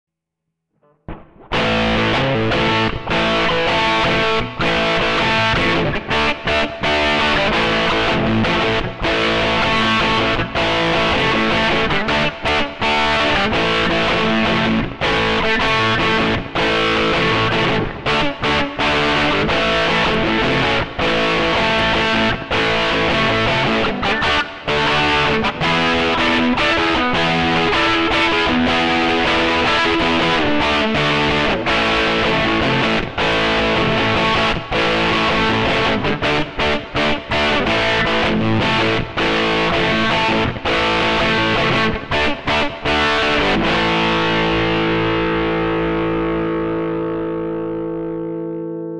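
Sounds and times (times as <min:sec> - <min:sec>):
distorted electric guitar: 0:00.8 - 0:48.9.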